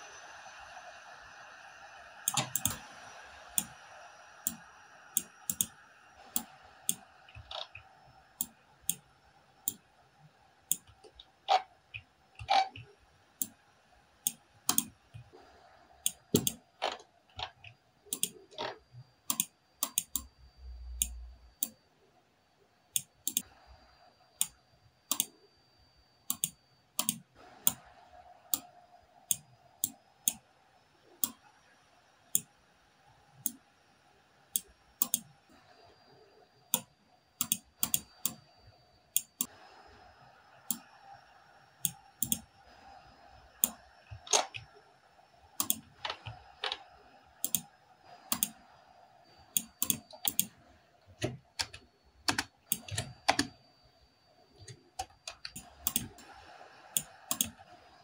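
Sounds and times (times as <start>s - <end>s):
computer mouse clicks: 2.2s - 9.9s, 10.7s - 13.6s, 14.2s - 15.4s, 16.0s - 21.8s, 23.0s - 23.5s, 24.4s - 25.4s, 26.2s - 27.9s, 28.5s - 28.7s, 29.3s - 30.4s, 31.1s - 31.5s, 32.3s - 32.6s, 33.3s - 33.6s, 34.5s - 35.4s, 36.7s - 38.5s, 39.1s - 39.6s, 40.6s - 41.0s, 41.8s - 44.8s, 45.6s - 53.6s, 54.6s - 57.7s
keyboard keystrokes: 51.2s - 53.6s.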